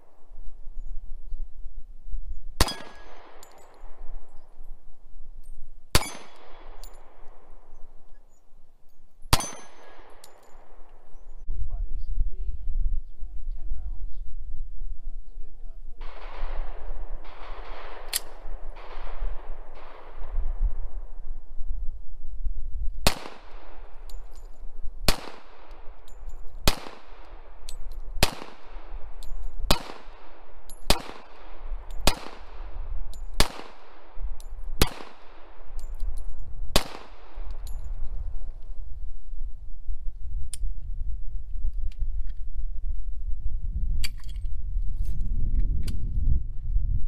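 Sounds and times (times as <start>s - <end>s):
pistol shots with echo: 2.6s - 4.6s, 5.9s - 8.1s, 9.3s - 11.4s, 16.0s - 21.4s, 23.0s - 38.6s.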